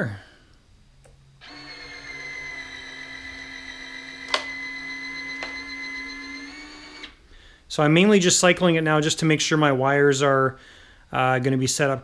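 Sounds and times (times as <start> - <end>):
retract motor whining: 1.4 - 7.2.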